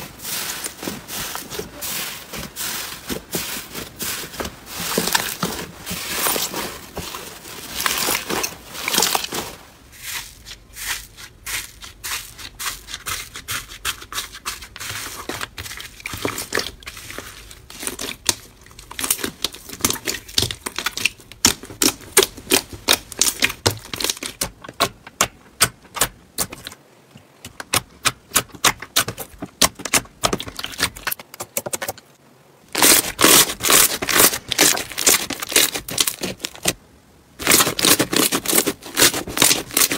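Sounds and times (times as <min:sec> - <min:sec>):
slime crackling and popping: 0:32.8 - 0:36.8, 0:37.4 - 0:39.9.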